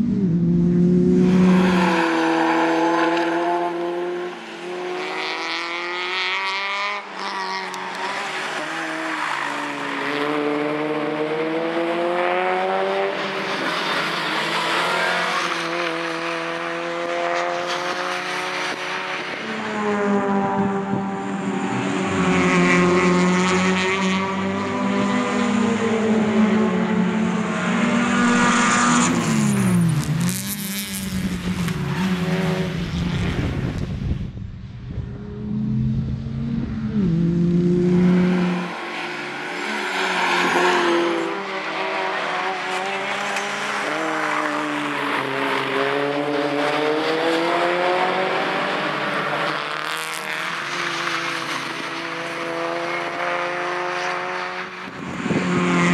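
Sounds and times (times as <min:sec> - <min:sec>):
racing car engines revving: 0:00.0 - 0:55.9
wind buffeting microphone: 0:32.6 - 0:37.0, 0:54.9 - 0:55.9.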